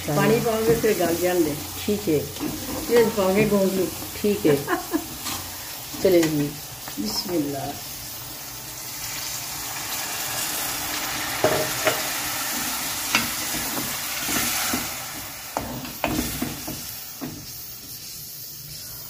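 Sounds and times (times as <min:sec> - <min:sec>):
water sizzling in hot pan: 0:00.0 - 0:19.0.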